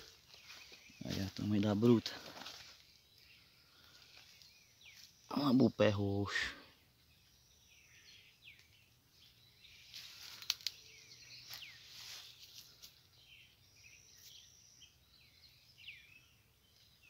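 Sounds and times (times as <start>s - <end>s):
rustle of dry leaves: 0.0s - 5.5s, 9.6s - 13.2s
small birds chirping: 0.0s - 17.0s.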